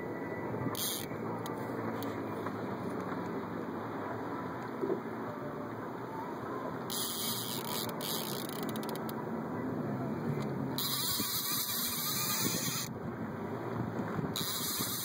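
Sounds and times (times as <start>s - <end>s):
wind buffeting microphone: 10.0s - 15.0s.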